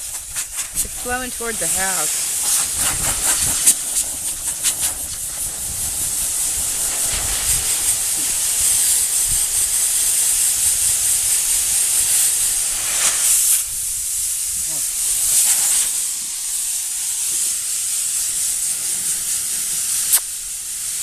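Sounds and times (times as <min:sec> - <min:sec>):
compressed air hissing from nozzle: 0:00.0 - 0:21.0.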